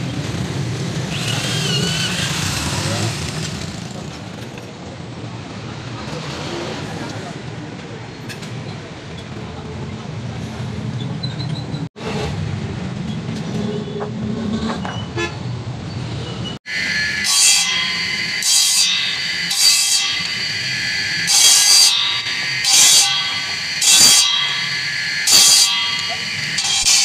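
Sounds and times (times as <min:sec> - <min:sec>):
electric motor whine: 0:16.7 - 0:27.0.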